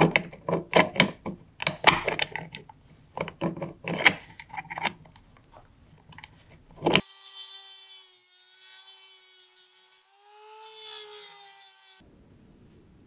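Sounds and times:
rotary tool grinding steel: 6.8s - 12.0s.

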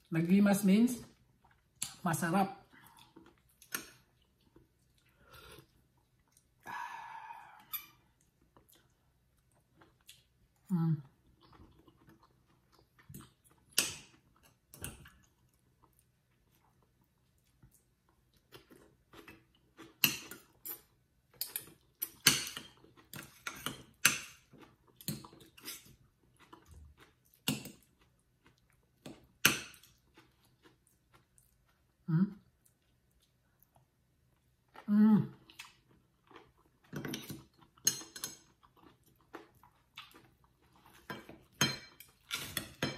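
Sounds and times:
cutlery clinking on ceramic bowl: 20.0s - 24.4s, 36.9s - 38.5s, 41.0s - 42.9s.

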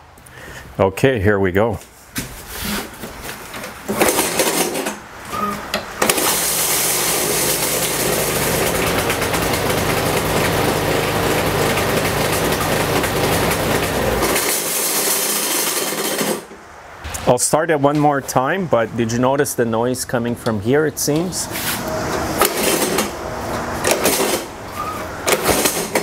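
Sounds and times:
recoil starter pulls: 3.6s - 16.6s, 20.4s - 26.0s
mower engine running: 3.9s - 16.6s, 21.1s - 26.0s.

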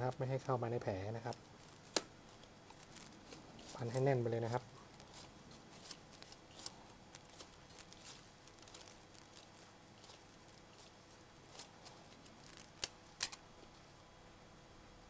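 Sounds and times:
plastic tape crinkling: 0.0s - 13.5s
tape snapping: 1.4s - 3.8s, 11.5s - 13.4s.

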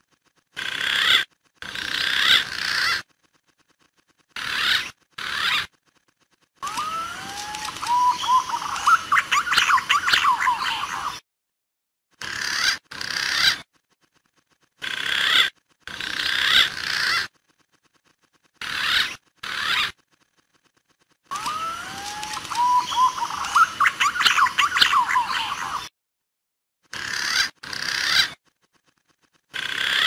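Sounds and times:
quick chirping: 0.2s - 11.2s, 12.3s - 25.9s
pigeon whistled song: 6.6s - 11.2s, 21.3s - 25.9s.

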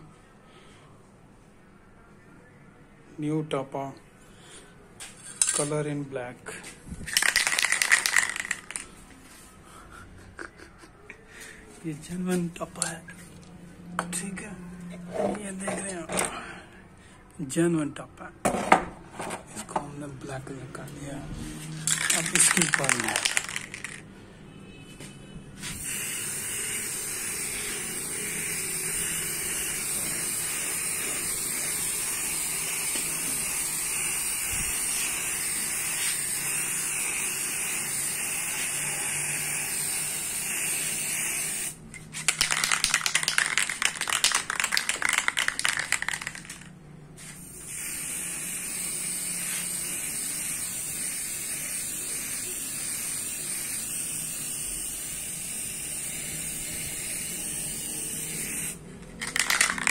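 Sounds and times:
spray can rattling: 5.3s - 5.7s, 7.0s - 9.0s, 21.8s - 24.1s, 25.6s - 33.9s, 34.7s - 38.8s, 40.4s - 57.8s, 58.4s - 59.9s
spray can hissing: 7.1s - 9.0s, 21.7s - 24.0s, 25.6s - 59.9s.

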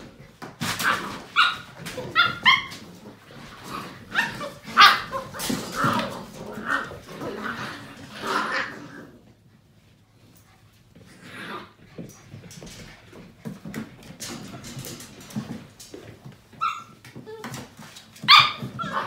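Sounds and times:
puppies barking and yipping: 0.8s - 6.1s, 16.5s - 17.0s, 18.2s - 19.0s.

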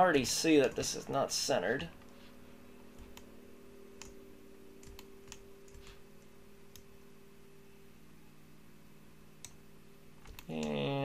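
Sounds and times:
steady low hum: 0.0s - 11.0s
computer mouse clicks: 10.2s - 10.8s.

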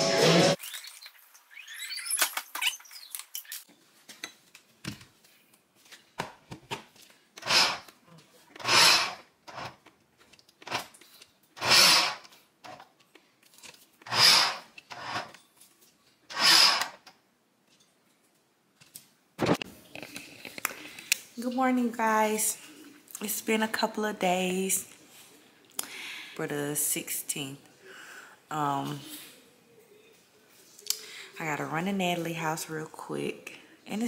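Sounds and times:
electric food chopper pulsing: 7.4s - 7.9s, 8.6s - 9.8s, 11.6s - 12.2s, 14.0s - 15.3s, 16.3s - 17.0s.

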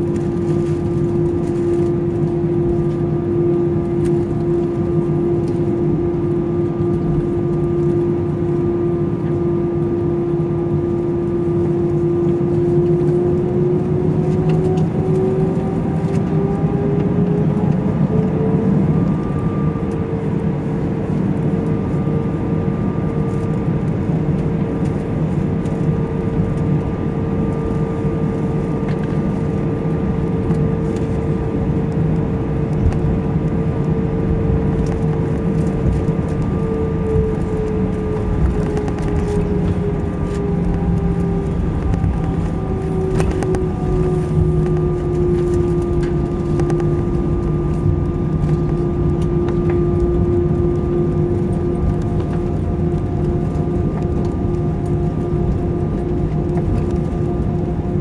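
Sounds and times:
jet engines whining and rumbling: 0.0s - 58.0s.

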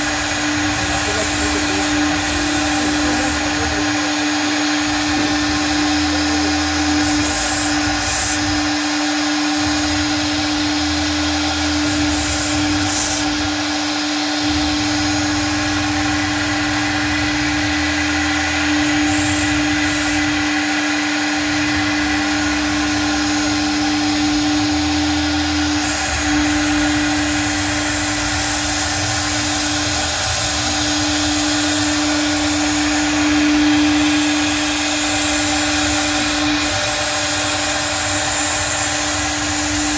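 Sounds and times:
low machine hum: 0.0s - 39.9s
router spindle whine: 0.0s - 39.9s.

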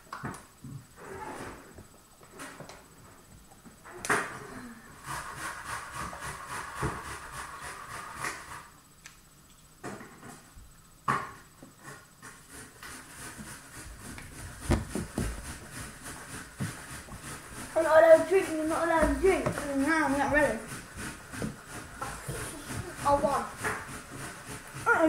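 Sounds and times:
plastic bottles rubbing: 12.2s - 25.0s.

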